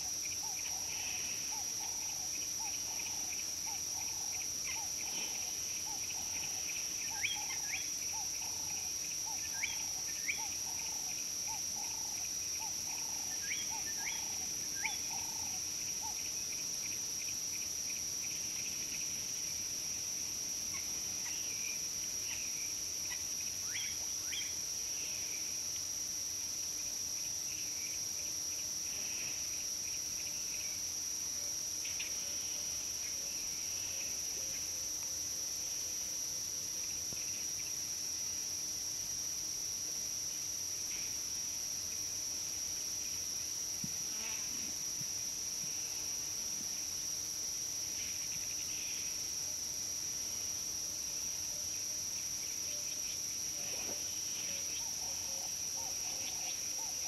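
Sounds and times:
high-pitched insect drone: 39.7s - 57.0s.

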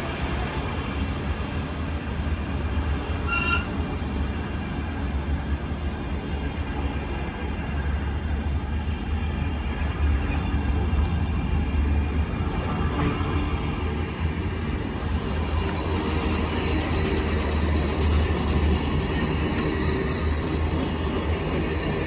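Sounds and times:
train wheels rumbling on rail: 0.0s - 22.0s
high wheel squeal: 3.2s - 3.8s.

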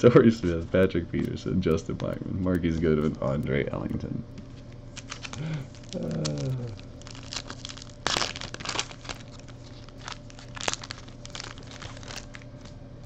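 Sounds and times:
foil pack tearing and crinkling: 5.0s - 12.7s.

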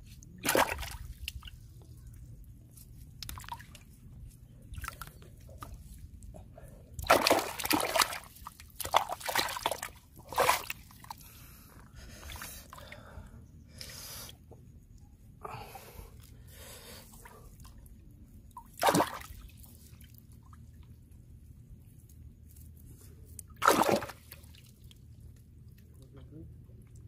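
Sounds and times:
hands splashing in muddy water: 0.4s - 1.6s, 7.0s - 11.1s, 18.7s - 19.5s, 23.6s - 24.4s.

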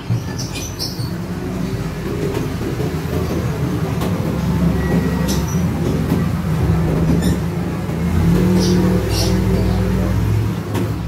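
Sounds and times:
engine rumbling: 0.0s - 11.0s.

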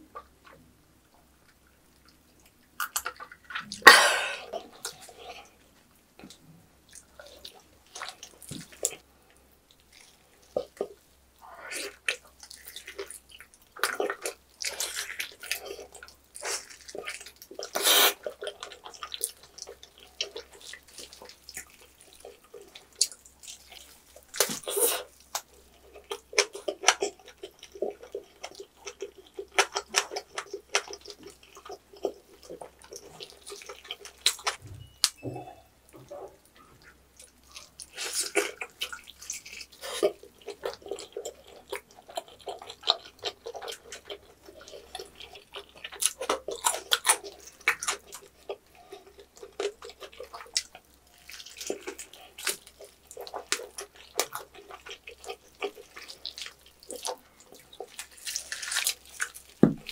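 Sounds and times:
wet chewing and smacking: 0.0s - 59.9s.

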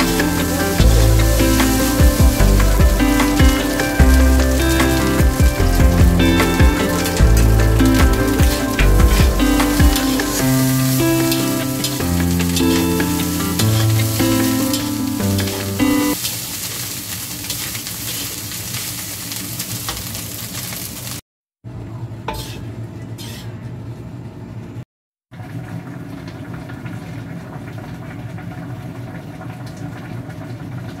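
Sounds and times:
low hum: 0.0s - 16.1s
metal spatula scraping wok: 0.0s - 16.2s, 22.3s - 23.6s
rice sizzling in a wok: 0.0s - 21.2s.

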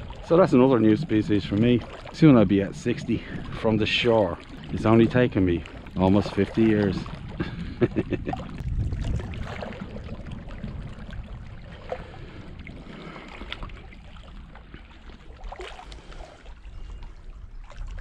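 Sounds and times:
sea water lapping on rocks: 0.0s - 18.0s.

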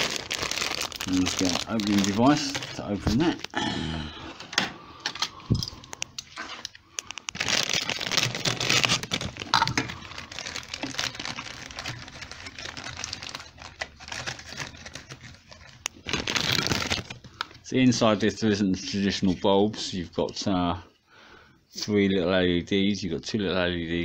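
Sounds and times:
plastic bag crinkling: 0.0s - 3.6s, 5.1s - 18.0s.

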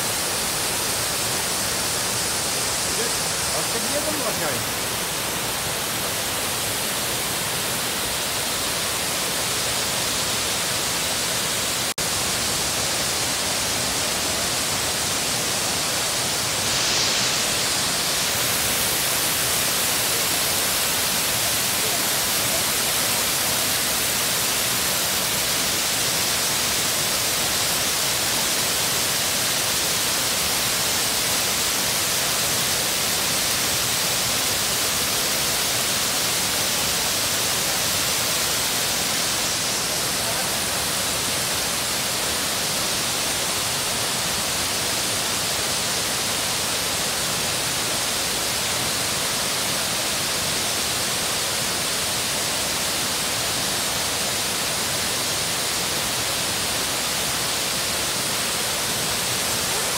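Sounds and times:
waterfall roaring: 0.0s - 59.9s.

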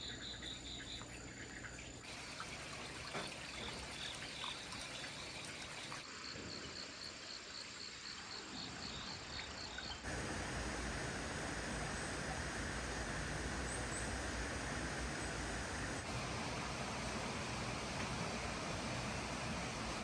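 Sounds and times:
water trickling: 1.0s - 6.2s, 9.2s - 20.0s
steady hiss: 10.0s - 20.0s.

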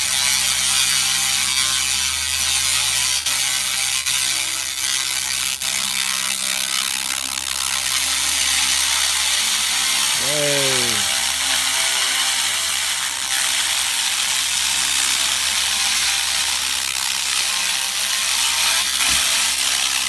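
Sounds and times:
laser cleaner buzzing crackle: 0.2s - 10.2s, 11.0s - 20.0s.

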